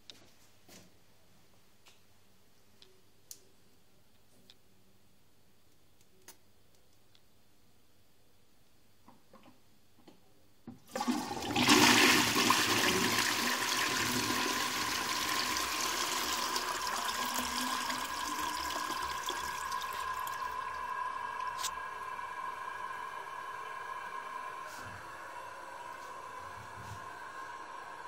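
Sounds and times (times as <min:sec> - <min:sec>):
toilet flushing: 0:10.8 - 0:28.0
cistern refilling whistle: 0:12.1 - 0:28.0.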